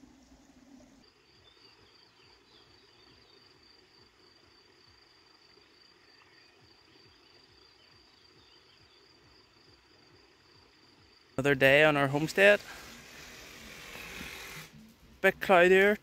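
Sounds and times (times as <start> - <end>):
cricket trilling: 0.0 - 16.0.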